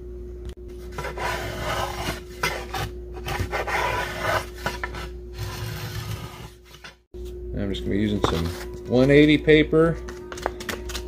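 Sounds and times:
hand plane scraping wood: 1.0s - 6.5s.

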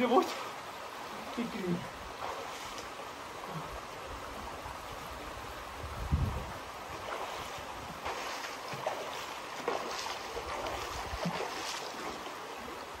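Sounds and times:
small waterfall rushing: 0.0s - 13.0s
person swimming splashes: 7.0s - 12.5s.

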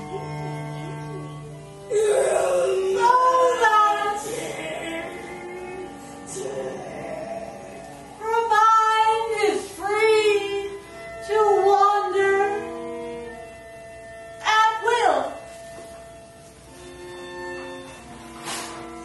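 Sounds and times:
steady sustained tone: 0.0s - 19.0s
high singing voice: 1.9s - 13.4s.

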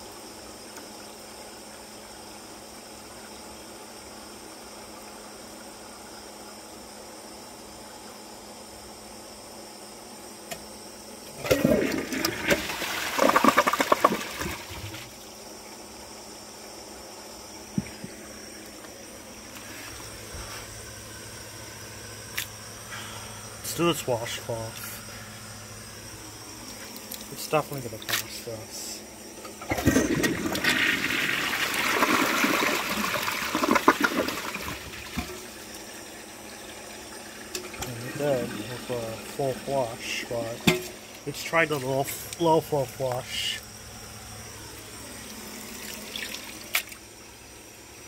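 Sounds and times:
toilet water rushing and gurgling: 11.3s - 15.4s, 29.6s - 42.4s, 44.8s - 47.2s.

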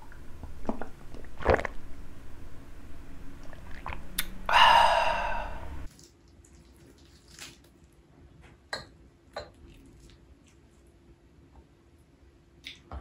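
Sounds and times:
man gulping a drink: 0.6s - 1.8s
breathy exhale: 4.5s - 5.9s.

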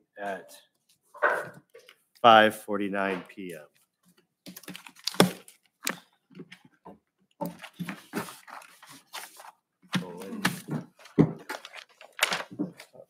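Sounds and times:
papers and objects rustling: 3.7s - 13.0s.

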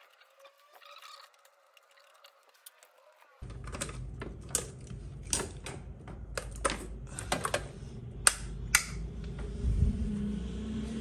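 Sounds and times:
low steady hum: 3.4s - 11.0s.

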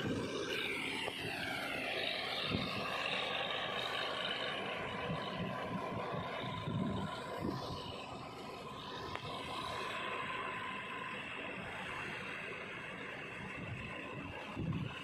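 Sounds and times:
high whine: 0.0s - 15.0s
tractor running under load: 0.0s - 15.0s.

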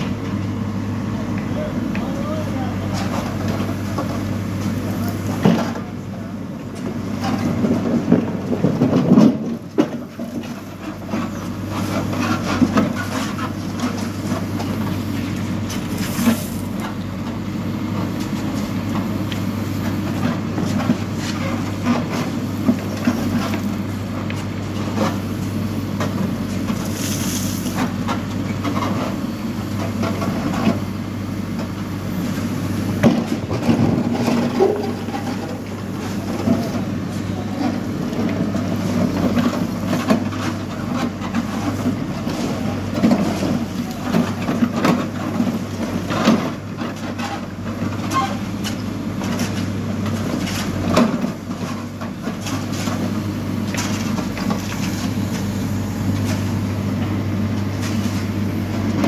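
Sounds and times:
diesel engine under hydraulic load: 0.0s - 59.0s
bucket knocking and scraping gravel: 15.7s - 16.7s, 33.0s - 37.0s.

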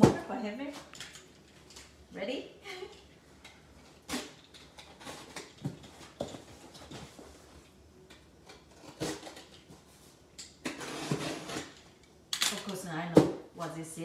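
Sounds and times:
box cutter scraping tape: 10.6s - 11.8s.

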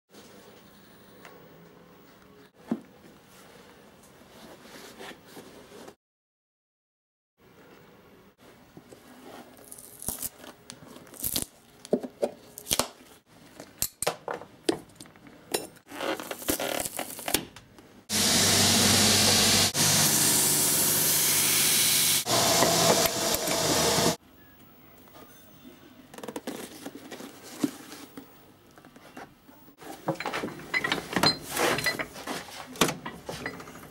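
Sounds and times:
loud steady machine noise: 18.1s - 24.2s.

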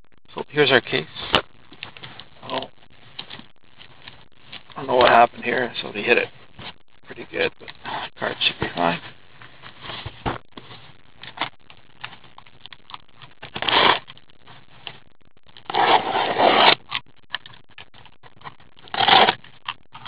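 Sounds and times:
cardboard scraping rush: 15.7s - 16.8s.

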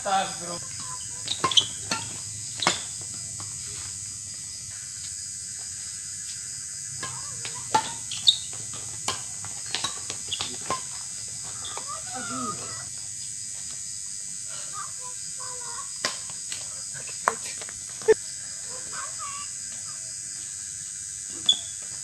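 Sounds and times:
rackets striking shuttlecock: 0.7s - 3.6s, 7.0s - 12.0s.

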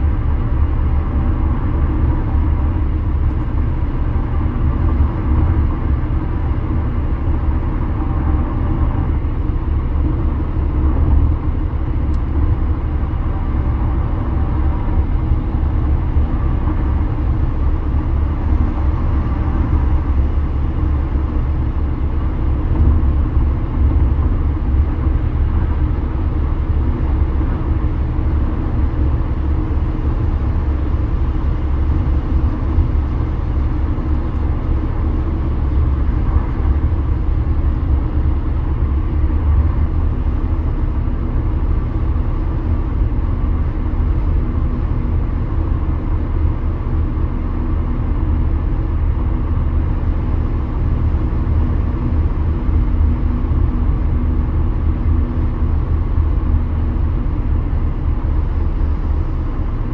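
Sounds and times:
car road noise: 0.0s - 59.9s
faint steady hum: 0.0s - 59.9s.

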